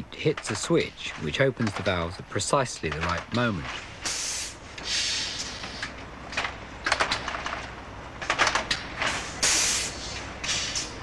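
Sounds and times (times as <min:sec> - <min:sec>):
compressed air hissing blasts: 0:04.0 - 0:05.9, 0:09.1 - 0:11.0.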